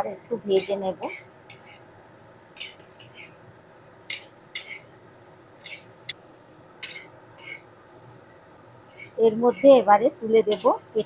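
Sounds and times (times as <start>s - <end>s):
faint steady hiss: 0.0s - 11.0s
metal spatula scraping pan: 8.9s - 11.0s.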